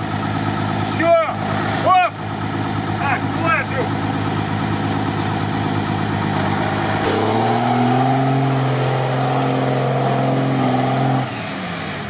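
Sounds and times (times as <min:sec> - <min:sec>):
engine idling: 0:00.0 - 0:07.5
truck engine under load: 0:00.0 - 0:12.0.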